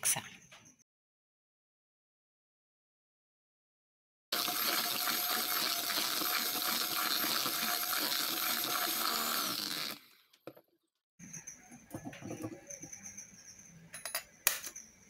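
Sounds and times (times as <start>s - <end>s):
electric hand mixer whining: 4.4s - 10.2s.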